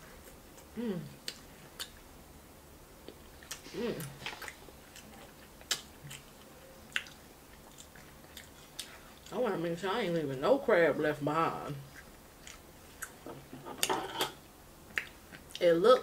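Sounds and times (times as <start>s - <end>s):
person humming: 0.7s - 1.2s, 3.7s - 4.2s
wet chewing with clicks and smacks: 1.2s - 2.1s, 3.0s - 9.4s, 11.8s - 13.2s, 14.9s - 15.7s.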